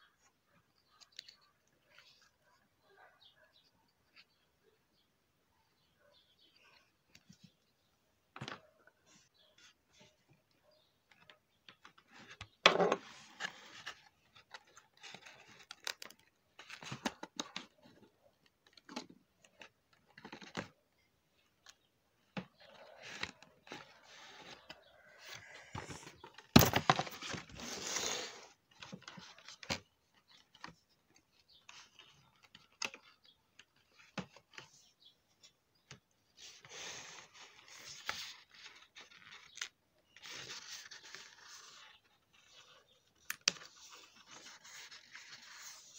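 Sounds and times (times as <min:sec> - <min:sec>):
cardboard and plastic packaging rustling: 0:22.2 - 0:28.1.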